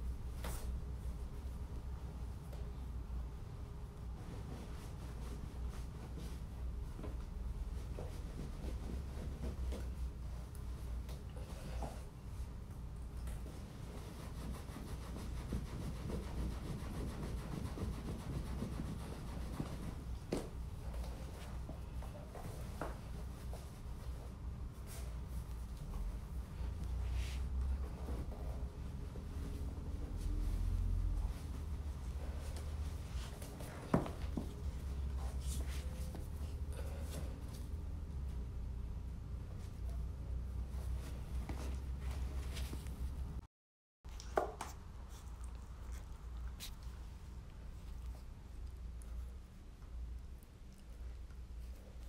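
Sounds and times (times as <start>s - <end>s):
towel rustling and rubbing: 3.8s - 37.8s, 39.5s - 43.4s
towel scrubbing fur: 13.4s - 21.5s.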